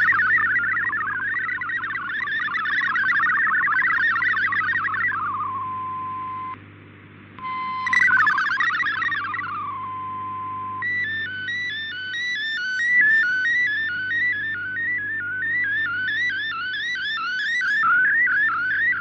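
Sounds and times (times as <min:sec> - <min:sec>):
warbling digital data tones: 0:00.0 - 0:06.6, 0:07.4 - 0:19.0
steady single tone: 0:00.0 - 0:06.8.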